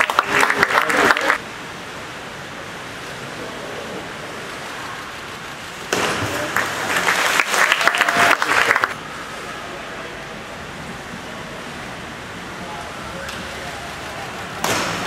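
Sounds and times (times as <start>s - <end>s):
spectators applauding and cheering: 0.0s - 1.4s, 6.2s - 9.0s
pool hall hiss: 0.0s - 15.0s.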